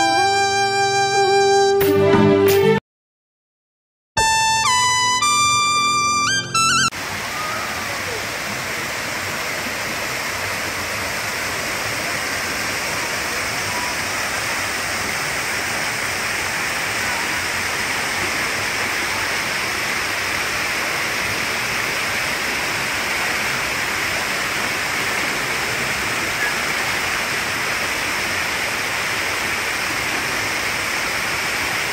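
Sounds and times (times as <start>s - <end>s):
waterfall pouring into pool: 6.9s - 31.9s.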